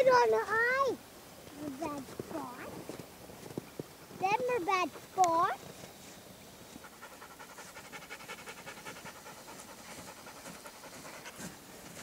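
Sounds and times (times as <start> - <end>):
rapid panting: 6.8 - 12.0.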